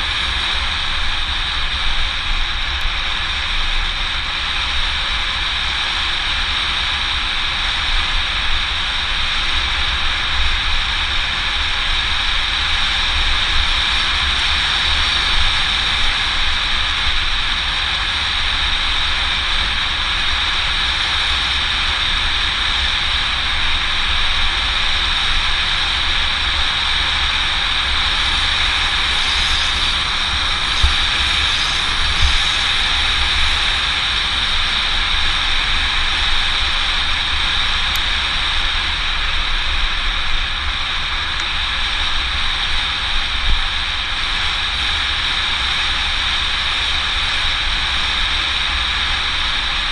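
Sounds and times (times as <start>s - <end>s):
bike tyres rolling on asphalt: 0.0s - 49.9s
wind buffeting microphone: 11.0s - 49.9s
low rumble: 26.1s - 46.7s.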